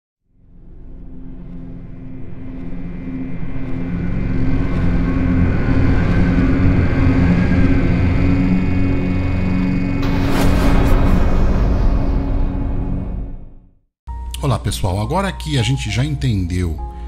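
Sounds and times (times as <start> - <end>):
low ominous drone and rumble: 0.3 - 13.8.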